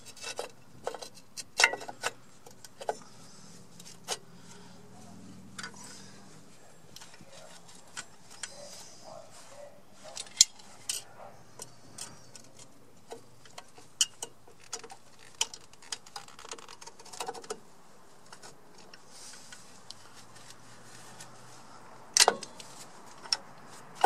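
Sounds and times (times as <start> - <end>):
metal tool clicking and clinking: 10.1 - 12.7.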